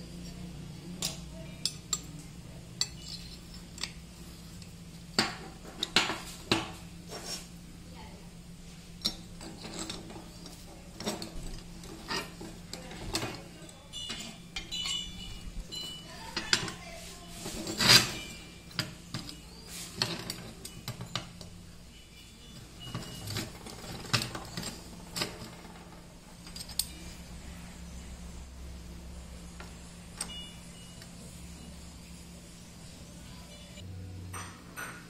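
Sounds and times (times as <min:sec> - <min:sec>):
steel parts clanking: 0:01.0 - 0:04.0, 0:09.0 - 0:27.4, 0:29.6 - 0:31.4.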